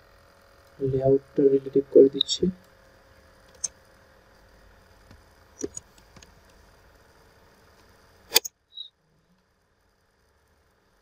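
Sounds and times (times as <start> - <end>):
faint steady hum: 0.0 - 11.0
keyboard and mouse clicks: 5.6 - 5.8.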